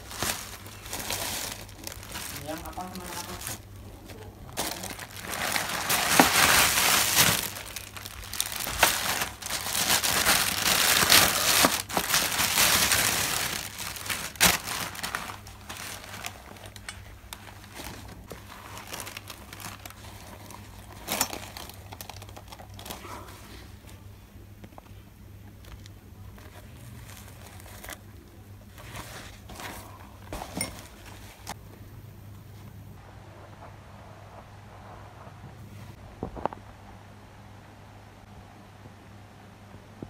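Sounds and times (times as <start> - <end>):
plastic bag crinkling: 0.0 - 23.2.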